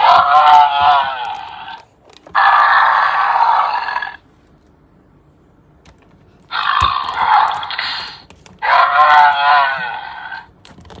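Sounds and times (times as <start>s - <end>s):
toy dinosaur growls through small speaker: 0.0s - 4.2s, 6.5s - 10.5s.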